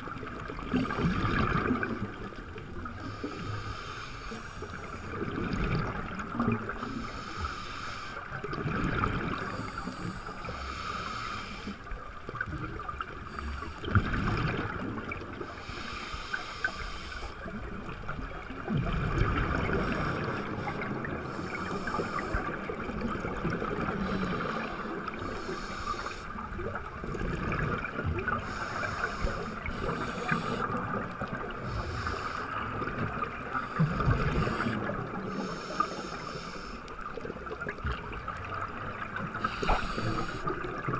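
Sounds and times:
exhaled bubbles underwater: 0:00.0 - 0:03.6, 0:04.6 - 0:07.5, 0:08.3 - 0:11.1, 0:11.9 - 0:15.7, 0:17.4 - 0:40.9
low rumbles of water movement: 0:00.0 - 0:40.9
underwater hiss: 0:02.8 - 0:06.0, 0:06.7 - 0:11.9, 0:13.2 - 0:14.6, 0:15.4 - 0:17.6, 0:19.4 - 0:26.6, 0:28.3 - 0:37.2, 0:39.1 - 0:40.9.

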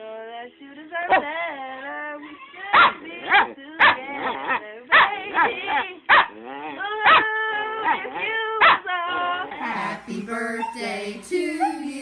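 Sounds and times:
dog yelping and howling: 0:01.1 - 0:09.6
overlapping voices: 0:09.5 - 0:12.0.

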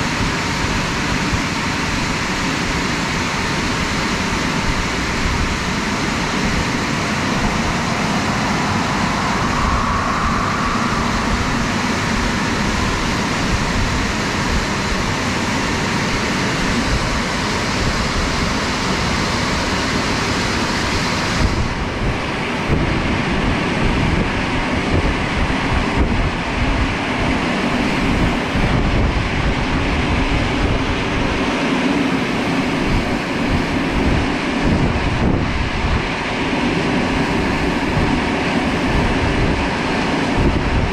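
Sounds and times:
drying blowers rushing air: 0:00.0 - 0:40.9.

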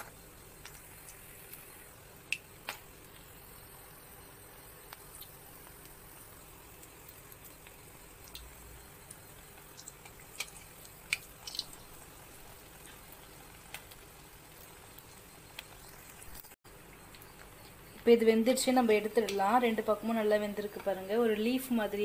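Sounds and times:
oil bubbling and popping: 0:00.0 - 0:21.1.

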